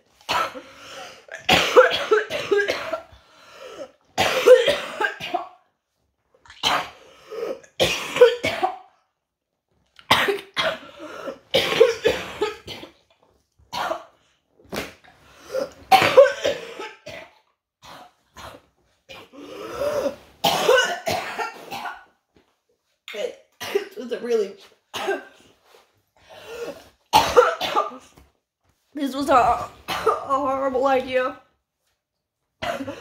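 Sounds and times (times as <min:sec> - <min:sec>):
woman coughing: 0:00.2 - 0:03.1, 0:04.2 - 0:05.6, 0:06.6 - 0:08.9, 0:10.1 - 0:13.0, 0:15.5 - 0:22.1, 0:23.1 - 0:25.4, 0:26.3 - 0:28.2, 0:29.8 - 0:30.4, 0:32.6 - 0:33.0.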